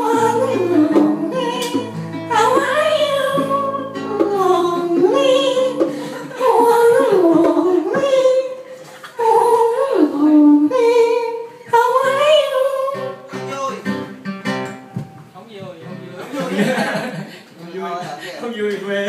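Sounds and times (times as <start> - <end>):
person singing into a microphone: 0.0 - 13.5.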